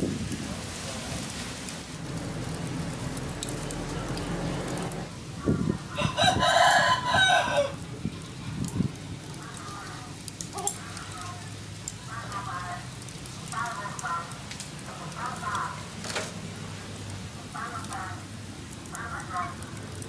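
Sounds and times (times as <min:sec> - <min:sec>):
rooster crowing: 0:05.9 - 0:07.8.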